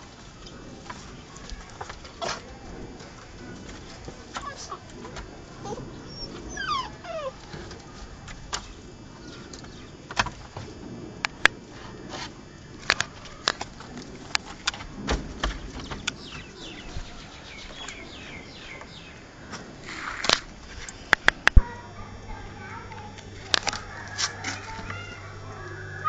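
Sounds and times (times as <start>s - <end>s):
dog whimpering: 5.6s - 7.5s.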